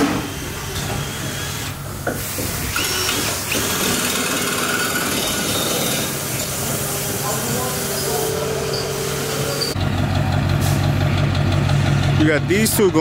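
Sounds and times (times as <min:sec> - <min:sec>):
power tool whirring: 0:00.0 - 0:09.8.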